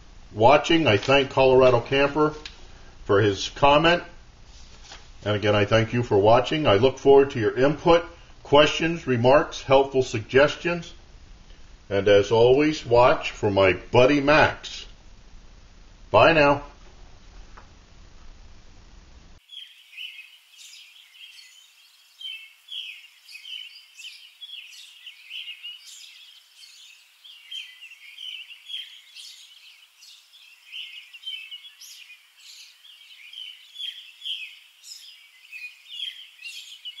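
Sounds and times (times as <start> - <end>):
faint hiss: 0.0 - 37.0
songbirds chirping and singing: 19.4 - 37.0.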